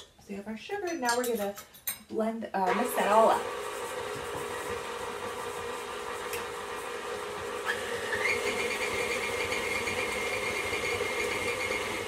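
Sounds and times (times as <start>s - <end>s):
stand mixer motor running: 2.7s - 12.0s
mixer click: 6.3s - 6.5s.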